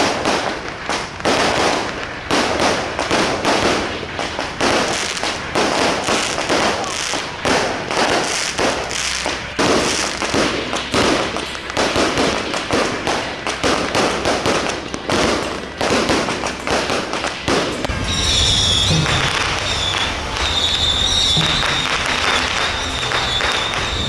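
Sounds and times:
firecrackers crackling: 0.0 - 24.0
high held tone: 14.7 - 24.0.

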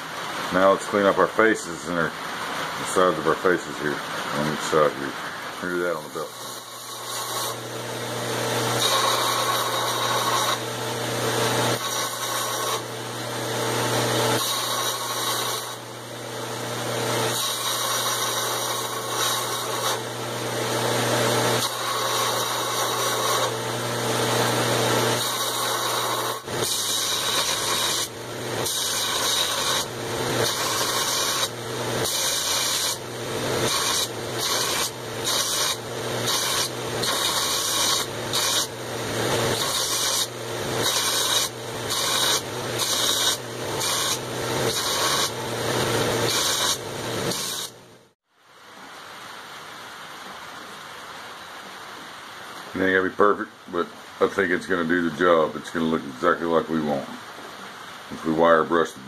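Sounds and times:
belt grinder grinding metal: 5.6 - 48.1.

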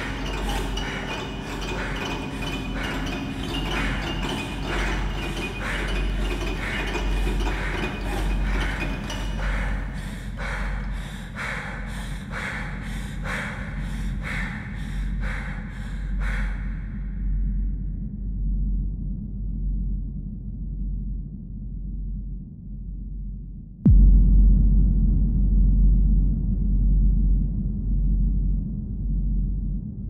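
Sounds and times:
low drone: 0.0 - 22.2.

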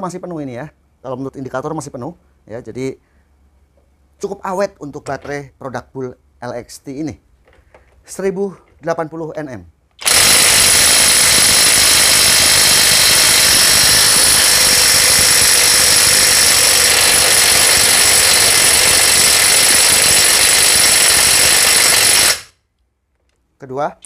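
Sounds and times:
impact wrench hammering: 10.0 - 22.5.

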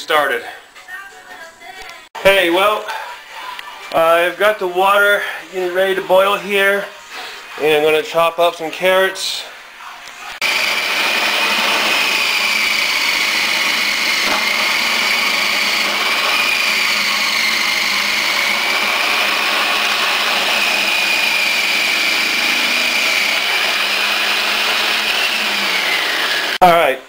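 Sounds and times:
food processor motor whining: 10.4 - 26.6.

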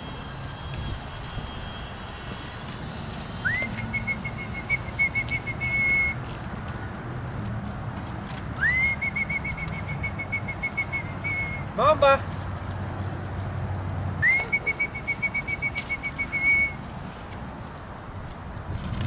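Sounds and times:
person whistling: 3.3 - 6.2, 8.6 - 11.7, 14.2 - 16.8.

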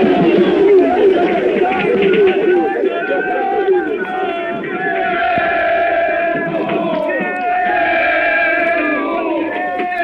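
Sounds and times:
men chanting together: 4.2 - 10.0.

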